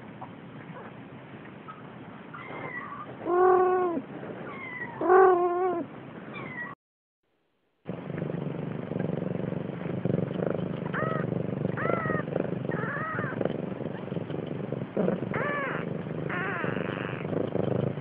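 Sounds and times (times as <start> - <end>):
steady low hiss: 7.9 - 18.0
kitten meowing: 15.4 - 17.2.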